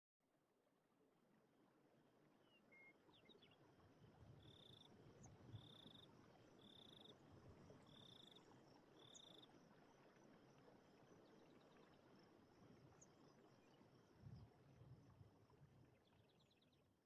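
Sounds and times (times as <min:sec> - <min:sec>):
cricket chirping: 0:04.4 - 0:15.2.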